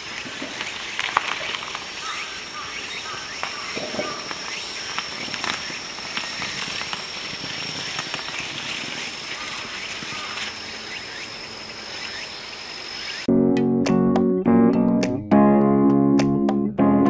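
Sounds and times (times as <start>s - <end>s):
high-pitched insect trill: 0.0s - 13.3s.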